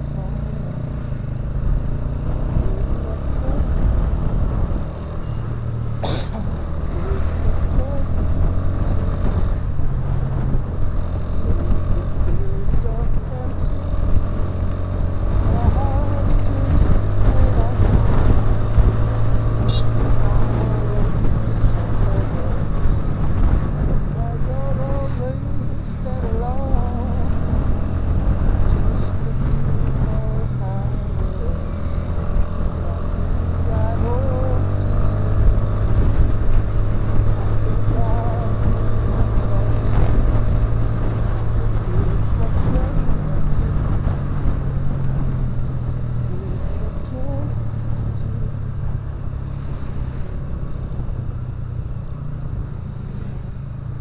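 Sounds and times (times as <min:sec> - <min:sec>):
motorcycle engine running: 0:00.0 - 0:54.0
wind rumbling on microphone: 0:00.0 - 0:54.0.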